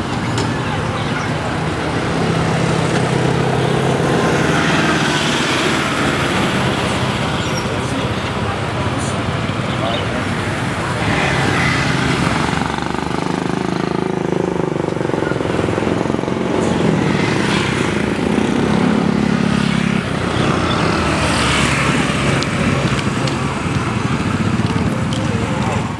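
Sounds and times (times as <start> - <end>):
street traffic engines: 0.0 - 25.9.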